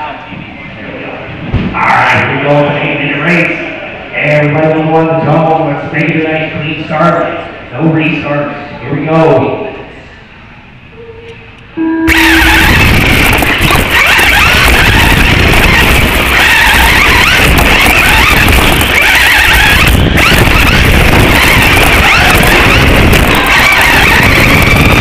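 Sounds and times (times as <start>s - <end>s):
electric motor and gears whining: 12.1s - 25.0s
tyres rumbling on dirt: 12.1s - 25.0s.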